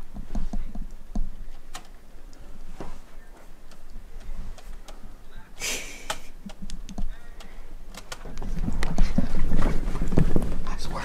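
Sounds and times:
laptop keyboard typing: 6.0 - 9.5.

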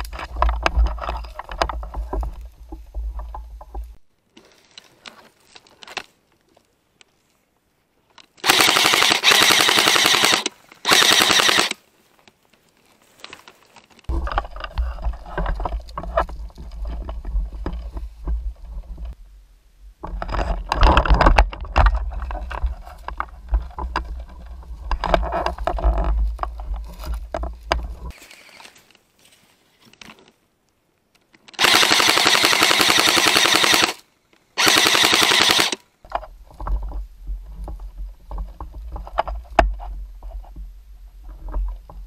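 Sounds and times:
rustling through scrub: 0.0 - 19.3, 20.0 - 30.5
airsoft gun full-auto bursts: 8.4 - 11.8, 31.6 - 34.0, 34.6 - 35.8.

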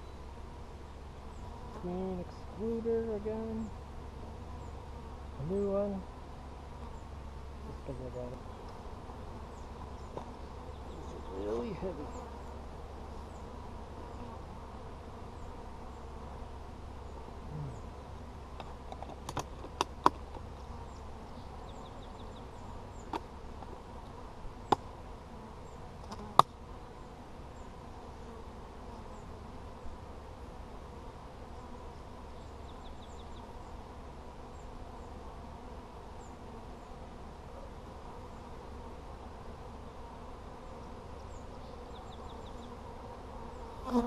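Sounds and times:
honey bees buzzing: 0.0 - 44.0
hive parts clicking and knocking: 18.6 - 20.5.

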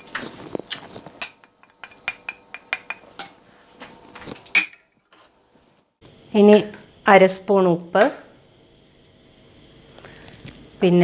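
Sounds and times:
metal spoon clinking on glass: 0.7 - 3.4.

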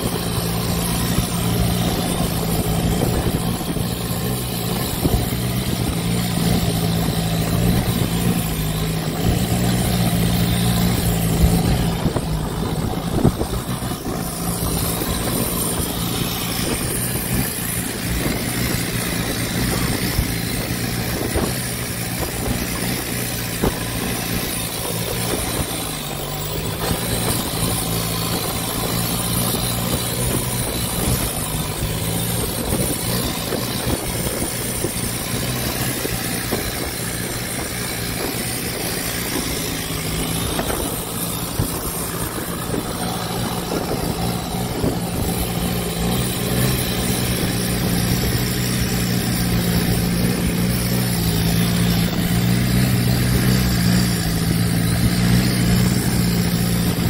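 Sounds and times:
boat engine humming: 0.0 - 57.0
wind: 0.0 - 57.0
water rushing: 5.8 - 45.7.

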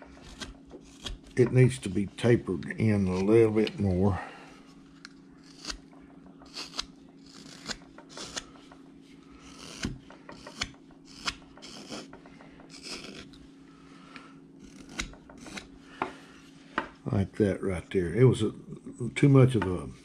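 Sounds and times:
knife cutting wood shavings: 0.0 - 4.4, 5.4 - 8.6, 9.4 - 12.1, 12.7 - 13.4, 14.2 - 15.7.

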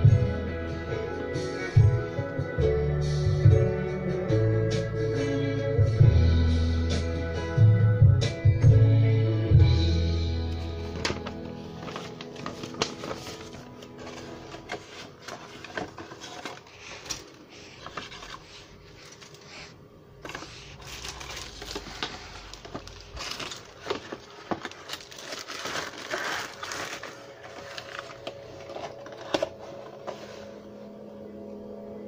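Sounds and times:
paper and plastic rustling: 10.5 - 30.6.

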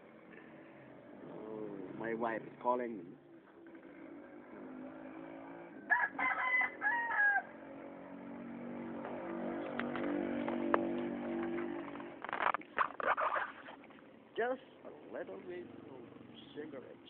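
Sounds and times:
rooster crowing: 5.8 - 7.7.

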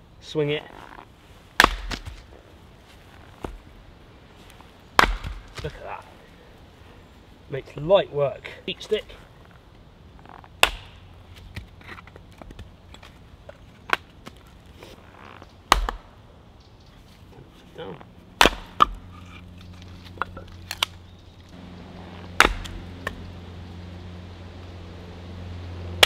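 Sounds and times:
hatchet chopping wood: 1.6 - 2.2, 5.0 - 5.8, 10.6 - 11.7, 15.7 - 16.1, 18.4 - 19.0, 22.3 - 23.2.

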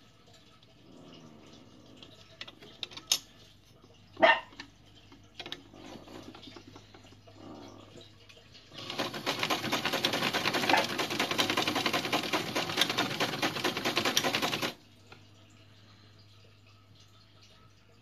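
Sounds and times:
sewing machine stitching: 5.4 - 6.8, 8.7 - 14.8.

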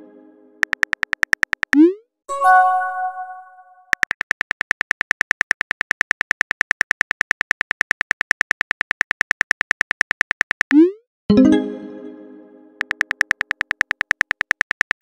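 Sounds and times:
phone keyboard typing clicks: 0.6 - 1.9, 3.9 - 10.8, 12.8 - 15.0.

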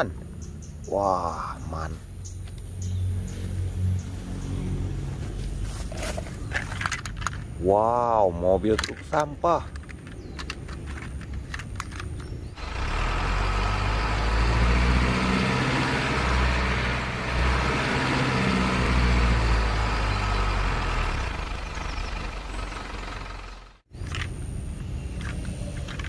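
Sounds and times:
low truck engine rumble: 9.4 - 26.0.

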